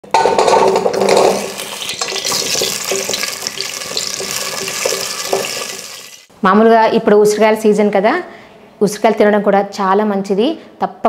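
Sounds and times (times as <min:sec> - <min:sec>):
hot oil sizzling: 0:00.1 - 0:06.3.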